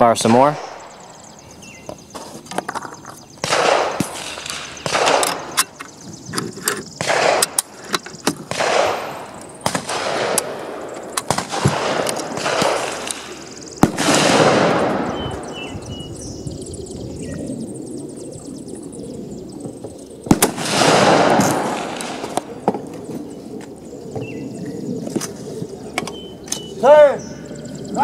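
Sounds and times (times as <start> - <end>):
rifle gunshots: 0.0 - 1.3, 3.4 - 5.8, 7.0 - 7.8, 8.4 - 15.7, 20.3 - 22.6.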